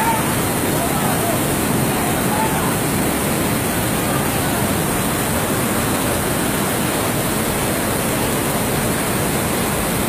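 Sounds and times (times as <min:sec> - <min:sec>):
roar of flood water: 0:00.0 - 0:10.0.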